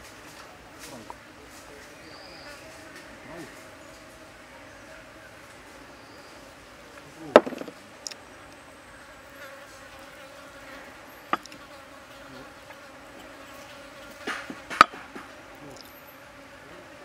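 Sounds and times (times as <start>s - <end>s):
insect buzzing: 8.7s - 17.0s.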